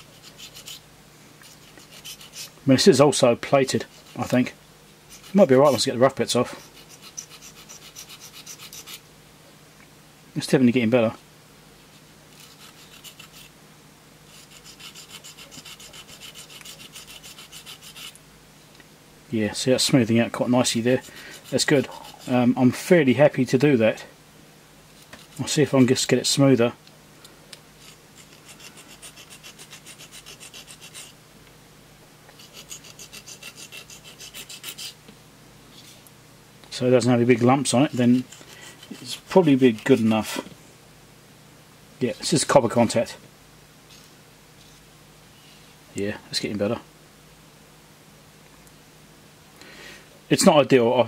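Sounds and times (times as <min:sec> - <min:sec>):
file scraping metal: 0:00.0 - 0:00.8, 0:01.4 - 0:02.6, 0:05.1 - 0:05.9, 0:06.5 - 0:09.0, 0:12.4 - 0:13.5, 0:14.3 - 0:18.2, 0:27.8 - 0:31.1, 0:32.4 - 0:35.0, 0:37.8 - 0:40.4.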